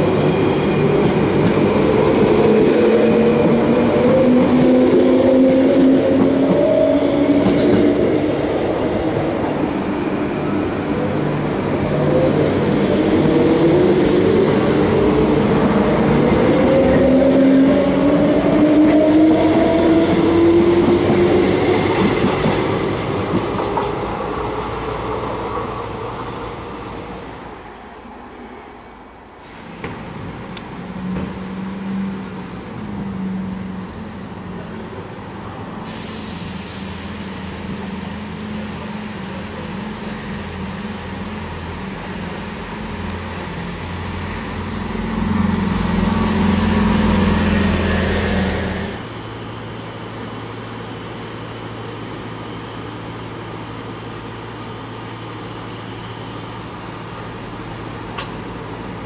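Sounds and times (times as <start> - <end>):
bus driving past: 29.4 - 59.0.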